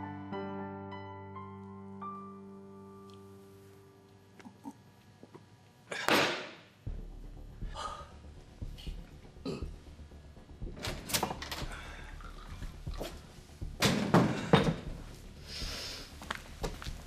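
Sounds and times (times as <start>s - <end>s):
low steady hum: 6.7s - 17.0s.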